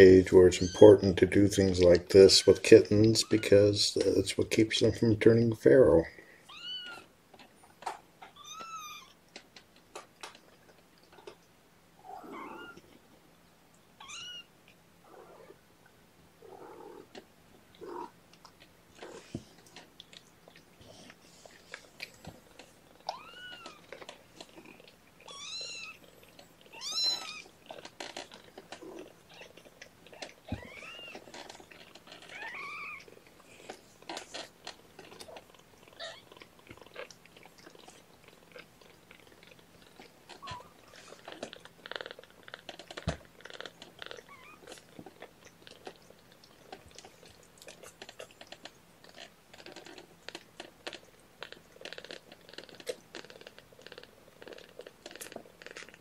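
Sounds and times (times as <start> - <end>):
kittens mewing: 28.7 - 31.4.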